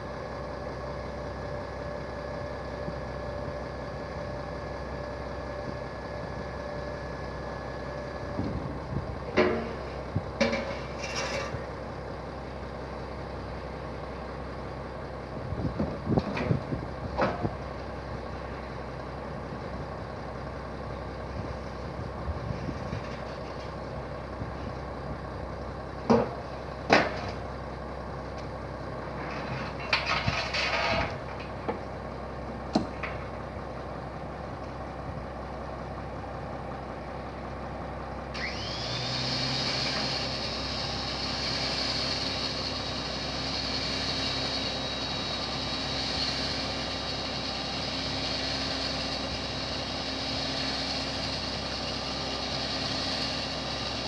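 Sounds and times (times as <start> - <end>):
metal ramps clanking: 29.3 - 31.5
motor whining: 38.3 - 40.4.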